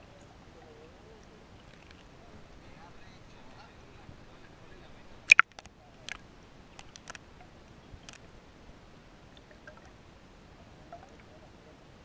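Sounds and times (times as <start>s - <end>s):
low hiss: 0.0s - 12.0s
camera housing clicks underwater: 5.3s - 6.2s, 6.8s - 7.2s.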